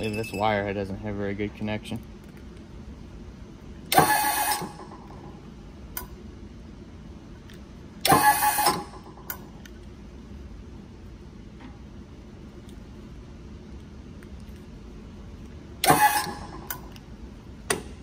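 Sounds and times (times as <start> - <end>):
hydraulic pump motor running: 3.9 - 5.3, 8.0 - 9.2, 15.8 - 16.8.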